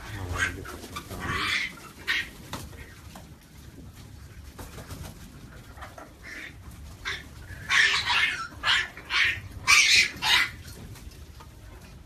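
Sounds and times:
parrots squawking harshly: 0.0s - 2.3s, 6.2s - 10.6s
parrots chattering: 0.0s - 2.9s, 5.7s - 10.7s.

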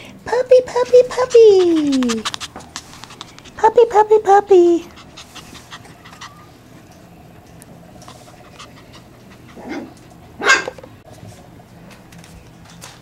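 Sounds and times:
puppy claws clicking and scratching: 0.7s - 4.2s
puppy whimper: 0.9s - 2.4s, 4.8s - 6.7s
sharp puppy yelp: 10.4s - 10.7s.

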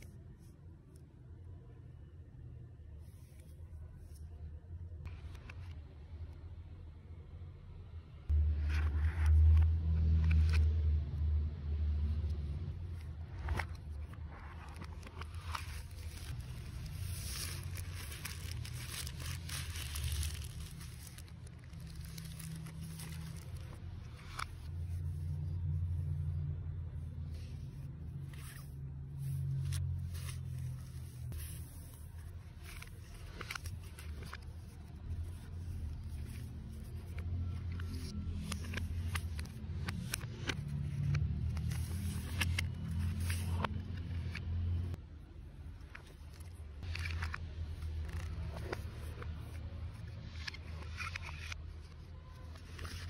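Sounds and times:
paper rustling: 13.2s - 25.6s, 27.3s - 44.4s
cardboard packaging rustling: 13.3s - 24.7s.

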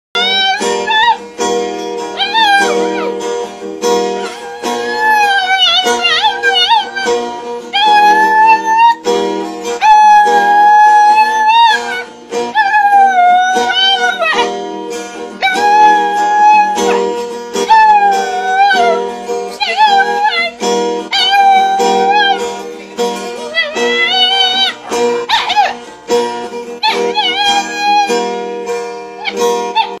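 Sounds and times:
dog howling: 0.2s - 1.2s, 2.2s - 3.2s, 4.1s - 9.0s, 9.8s - 14.5s, 15.4s - 19.0s, 19.6s - 22.5s, 23.5s - 25.9s, 26.8s - 28.3s, 29.2s - 30.0s
strummed acoustic guitar: 0.2s - 30.0s.

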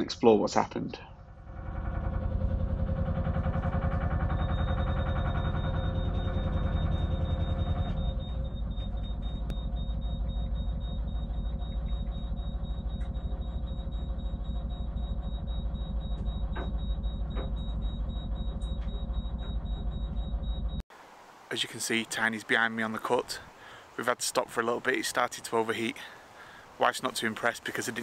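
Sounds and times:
boat engine chugging: 1.1s - 20.8s
high-pitched alarm tone: 1.3s - 20.8s.

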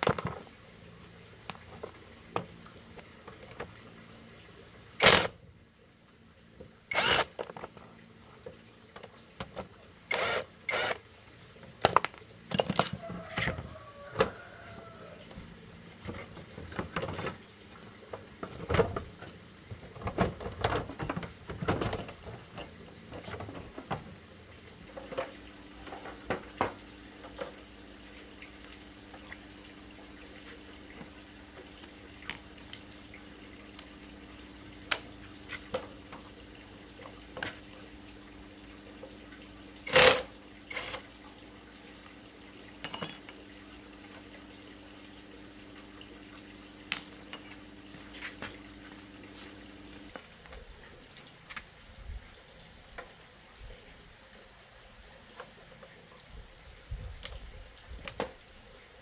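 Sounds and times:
faint steady hum: 0.0s - 59.0s
metal tools clinking on concrete: 11.8s - 13.4s, 42.8s - 43.4s, 46.9s - 47.6s, 50.1s - 51.0s, 58.0s - 58.4s.

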